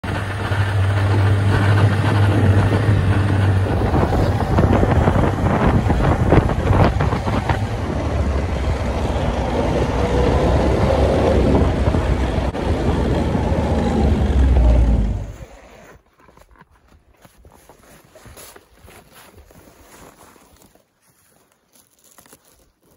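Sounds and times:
wind buffeting microphone: 0.0s - 15.5s
snowmobile engine running: 0.0s - 16.0s.

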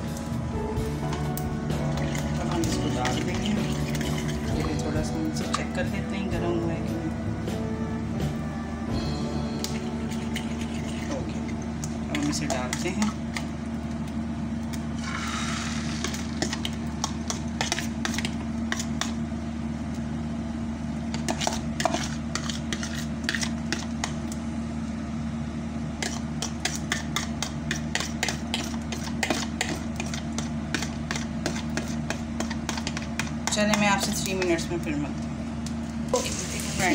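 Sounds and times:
steady mechanical hum: 0.0s - 36.9s
egg sizzling in oil: 13.2s - 19.3s, 35.9s - 36.9s.

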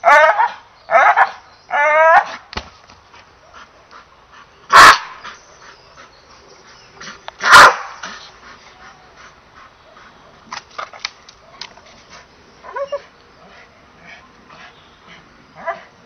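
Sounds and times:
dog barking: 4.7s - 5.2s, 7.4s - 8.0s.

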